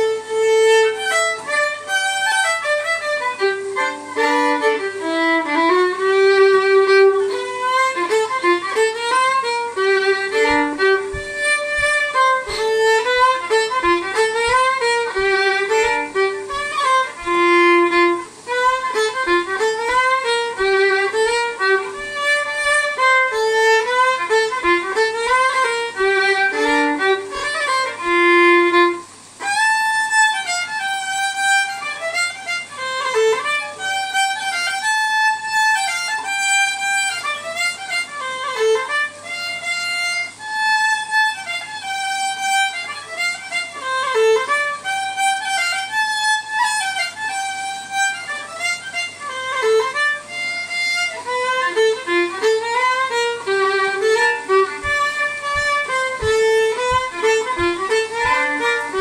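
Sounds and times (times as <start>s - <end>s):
fiddle playing a lively tune: 0.0s - 59.0s
soft low thump keeping time: 7.2s - 29.0s, 51.9s - 59.0s.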